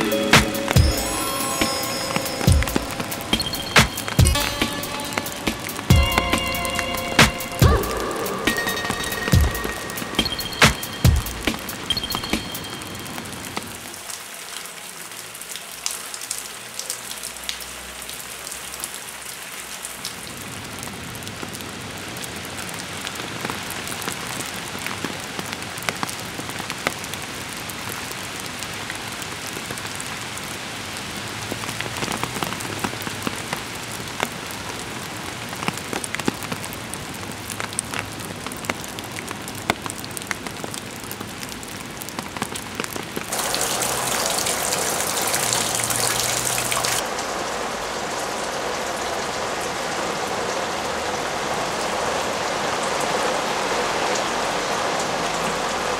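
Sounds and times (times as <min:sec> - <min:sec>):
rain pattering: 0:00.0 - 0:55.9
drops ticking: 0:02.1 - 0:12.9.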